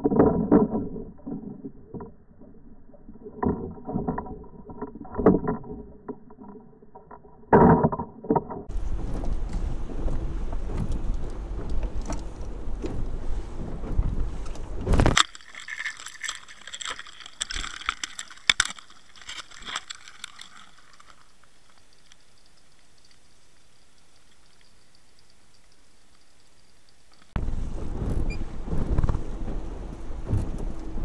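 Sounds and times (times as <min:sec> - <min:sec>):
wind and water noise: 0:00.0 - 0:31.0
low rumble: 0:17.7 - 0:31.0.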